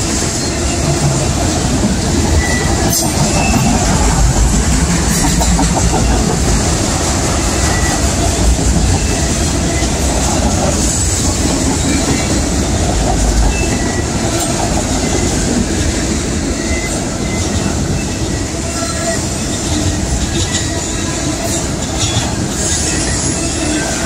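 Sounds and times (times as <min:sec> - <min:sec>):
steel wheels rumbling on track: 0:00.0 - 0:24.0.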